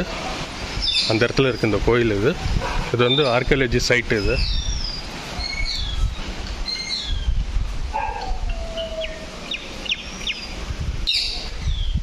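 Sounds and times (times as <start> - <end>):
birds chirping: 0.0 - 12.0
bird whistle gliding down: 4.4 - 7.4, 8.2 - 10.5.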